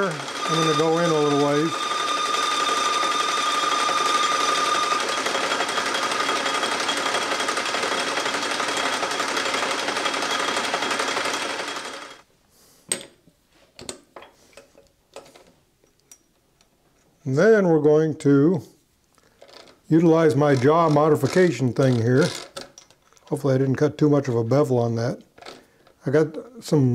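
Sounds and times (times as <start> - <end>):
metal lathe cutting: 0.0 - 12.2.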